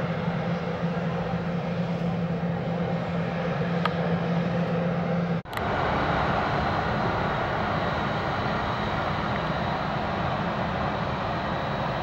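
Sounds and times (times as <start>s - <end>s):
jet engines droning at taxi power: 0.0s - 12.0s.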